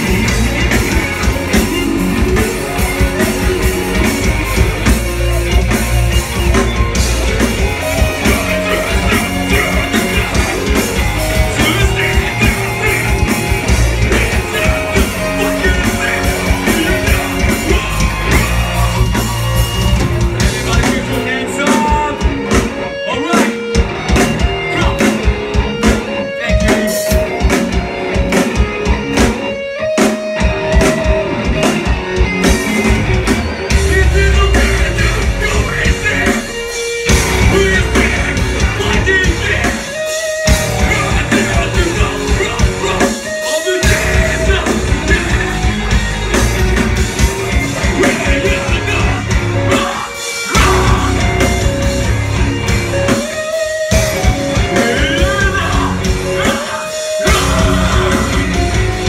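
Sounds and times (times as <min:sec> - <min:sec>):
bass guitar: 0:00.0 - 0:59.0
distorted electric guitars: 0:00.0 - 0:59.0
drums: 0:00.0 - 0:59.0.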